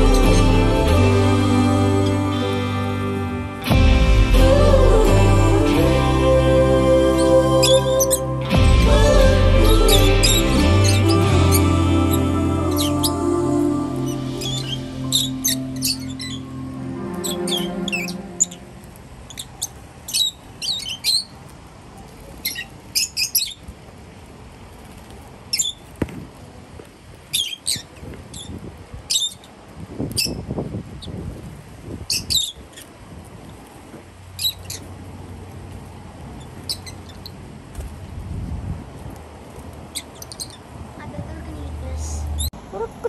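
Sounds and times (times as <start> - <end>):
lovebirds chirping and squawking: 7.2 - 8.3, 9.8 - 13.3, 14.0 - 21.5, 22.3 - 23.6, 25.5 - 25.9, 27.3 - 29.6, 32.1 - 33.0, 34.3 - 35.0, 36.3 - 37.4, 39.9 - 40.8.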